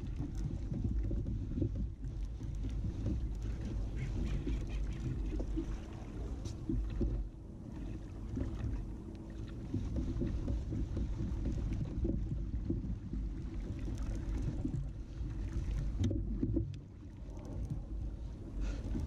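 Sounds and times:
water against a kayak: 0.0 - 19.0
wind: 0.0 - 19.0.

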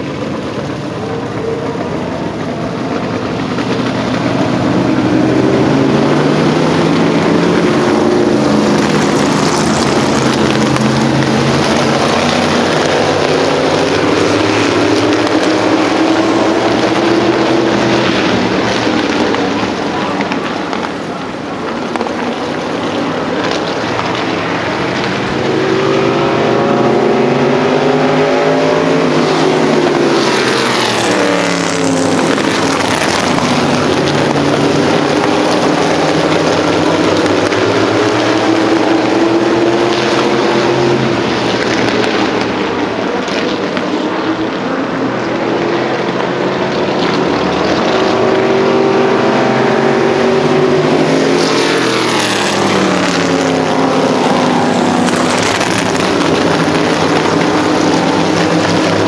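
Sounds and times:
distant engines droning: 0.0 - 59.0
race cars passing: 0.0 - 59.0.

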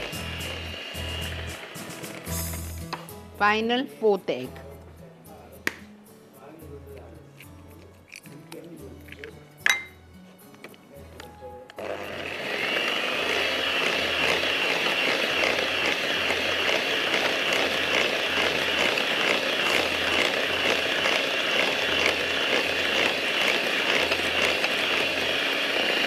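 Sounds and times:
electric mixer whining: 0.0 - 2.8, 11.7 - 26.0.

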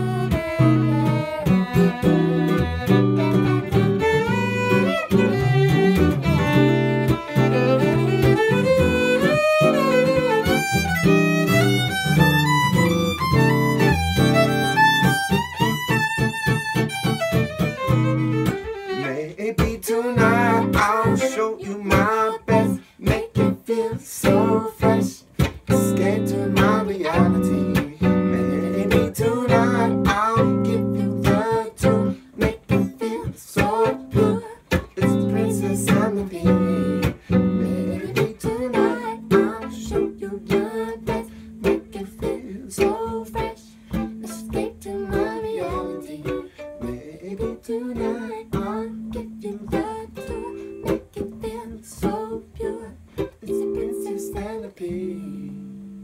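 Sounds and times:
person singing: 0.0 - 16.3, 17.7 - 55.7
violin playing: 0.0 - 19.4, 20.2 - 51.6
electric guitar strumming: 0.0 - 56.0.

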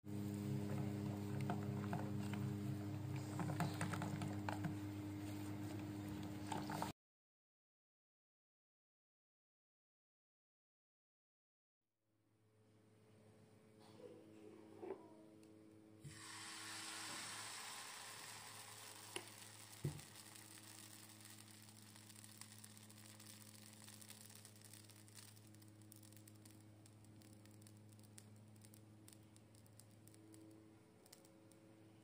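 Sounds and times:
low steady hum: 0.1 - 6.9, 12.5 - 32.0
batter sizzling in a pan: 16.0 - 30.5
bubbles crackling: 17.6 - 30.4.

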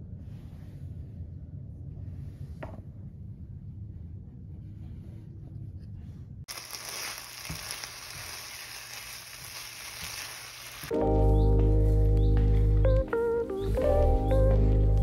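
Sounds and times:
low room rumble: 0.0 - 6.5, 10.9 - 15.0
food sizzling in a frying pan: 6.5 - 10.9.

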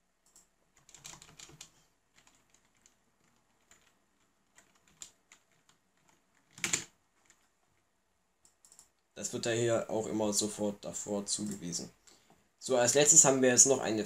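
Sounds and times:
keyboard typing clicks: 0.2 - 3.0, 8.4 - 9.0.

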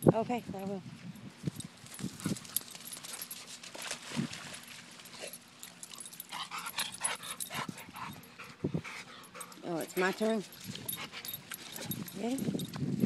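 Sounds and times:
dog panting: 6.0 - 12.1.

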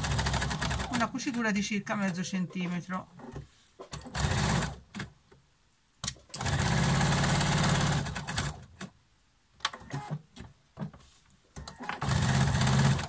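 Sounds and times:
sewing machine stitching: 0.0 - 1.4, 3.2 - 5.1, 6.3 - 8.7, 11.6 - 13.0.

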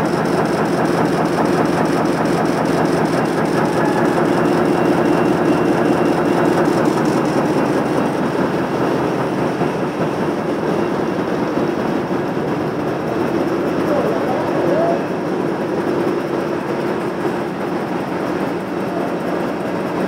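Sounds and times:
constant machine hum: 0.0 - 20.0
printing press clattering: 0.0 - 20.0.

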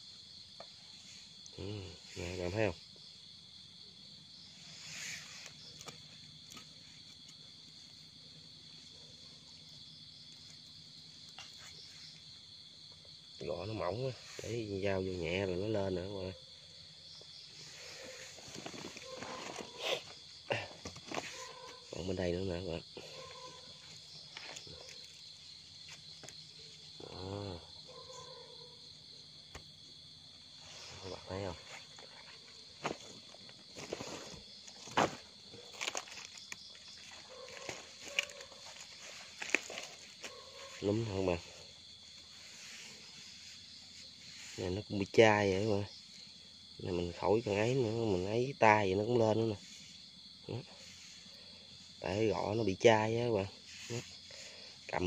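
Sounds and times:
crickets chirping: 0.0 - 55.0
night insects trilling: 0.0 - 55.0
man making wordless sound: 1.6 - 2.7, 27.0 - 27.7
rustling in damp soil: 4.2 - 28.4, 29.6 - 55.0.

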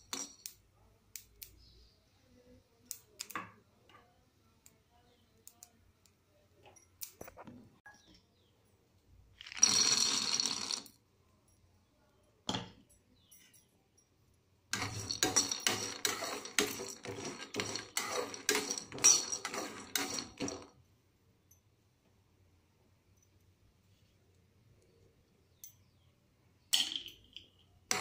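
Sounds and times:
peanuts rattling into metal pan: 9.4 - 10.9, 14.7 - 20.7, 26.8 - 28.0
spatula scraping peanuts in pan: 14.7 - 20.7.

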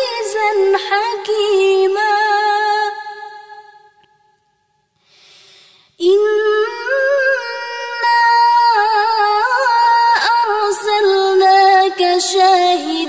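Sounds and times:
woman reciting melodically: 0.0 - 3.7, 6.0 - 13.0
intake of breath: 5.0 - 6.0.

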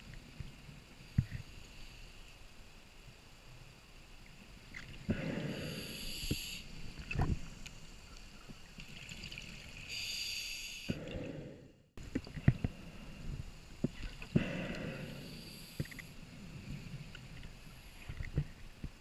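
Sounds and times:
scuba regulator breathing: 5.1 - 6.7, 14.3 - 16.6.

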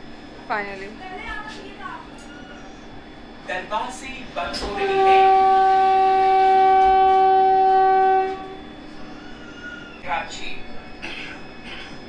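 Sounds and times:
train horn long note: 4.6 - 8.8.

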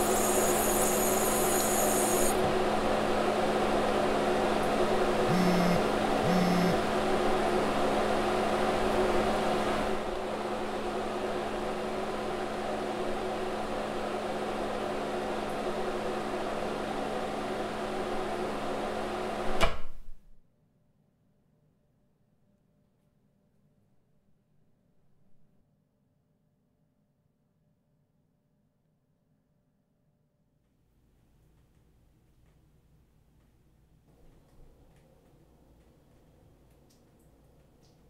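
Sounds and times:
tap water running: 0.0 - 2.6
microwave oven humming: 0.0 - 19.6.

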